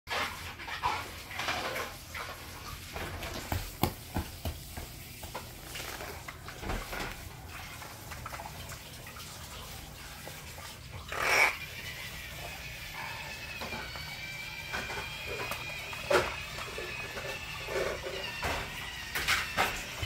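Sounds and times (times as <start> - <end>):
child running footsteps: 3.0 - 7.0.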